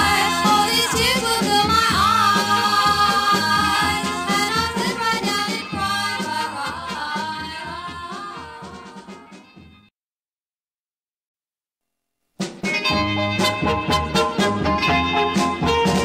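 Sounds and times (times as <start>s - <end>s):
vocal group record playing: 0.0s - 9.6s.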